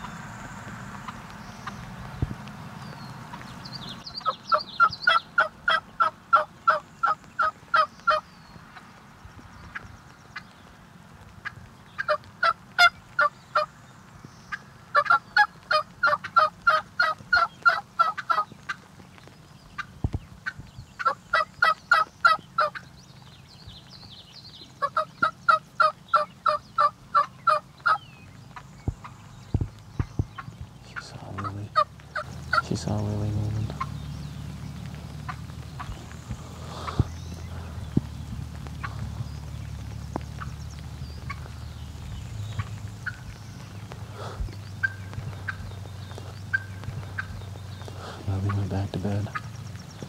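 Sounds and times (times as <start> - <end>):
songbirds singing faintly: 0.0 - 50.0
turkey yelping: 4.2 - 8.2, 14.9 - 18.8, 19.8 - 22.9, 24.8 - 28.0, 31.3 - 32.7, 42.5 - 43.4, 44.2 - 48.3.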